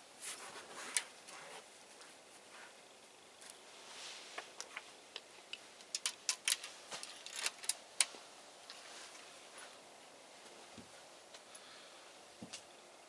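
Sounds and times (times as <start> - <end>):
rifle handling clicks: 5.8 - 8.1.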